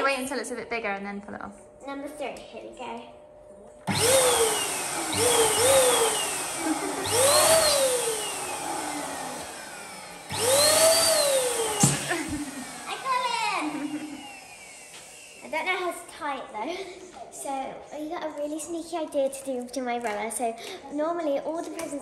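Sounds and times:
electric balloon pump whirring: 0:03.2 - 0:17.1.

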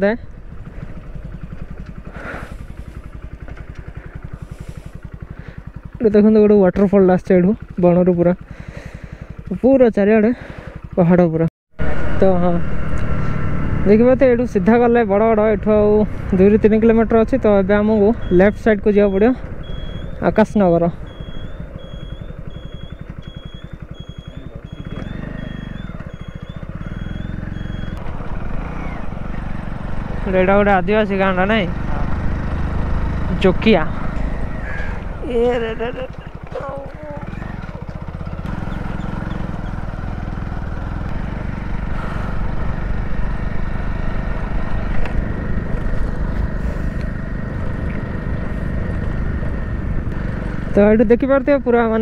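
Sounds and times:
small motorcycle engine: 0:00.0 - 0:52.0
turn-signal buzzer beeping: 0:18.2 - 0:20.2, 0:21.0 - 0:28.0.

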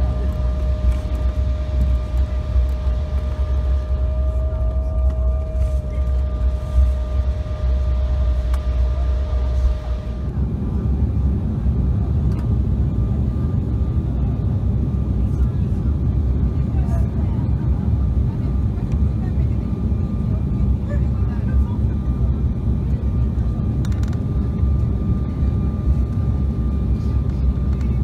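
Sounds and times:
thin steady whine: 0:00.0 - 0:10.9
deep rumble of jet engines: 0:00.0 - 0:28.0.

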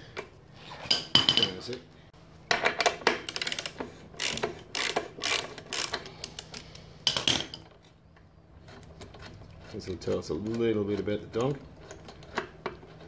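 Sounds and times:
socket ratchet clicking: 0:03.1 - 0:06.7.

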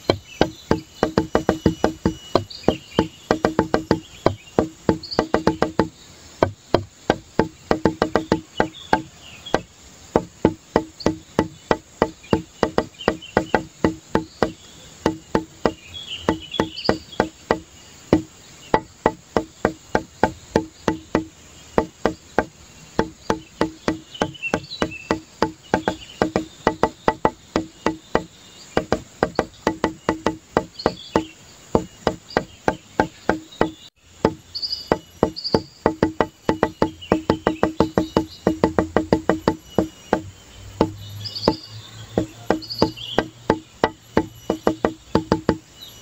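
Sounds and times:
faint high chirps: 0:00.0 - 0:06.4
music with short struck notes: 0:00.0 - 0:46.0.

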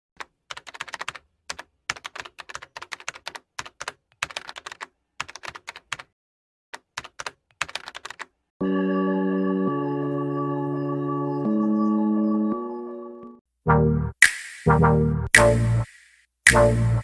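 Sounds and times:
typing on computer keyboard: 0:00.2 - 0:06.1, 0:06.8 - 0:08.4.

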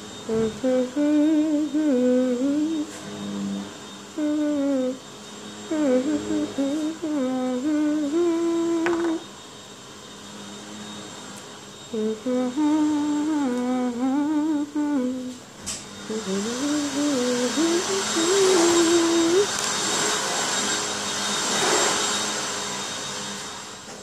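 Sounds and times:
girl humming: 0:00.3 - 0:03.0, 0:04.2 - 0:05.0, 0:05.7 - 0:09.2, 0:11.9 - 0:15.4, 0:16.0 - 0:19.5.

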